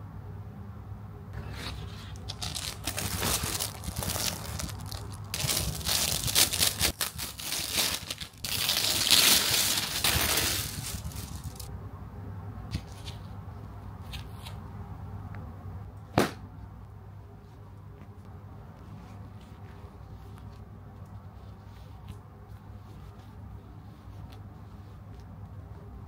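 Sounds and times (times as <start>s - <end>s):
plastic wrapping crinkling and tearing: 2.1s - 11.7s.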